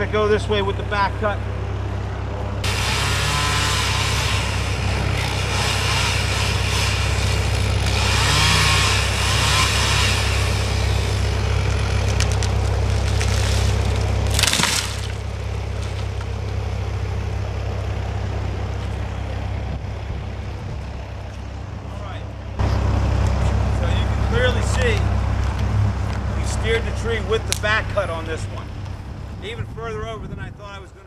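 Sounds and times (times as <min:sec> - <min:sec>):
chainsaw cutting wood: 0:02.6 - 0:16.1
wood cracking as tree falls: 0:11.6 - 0:16.6.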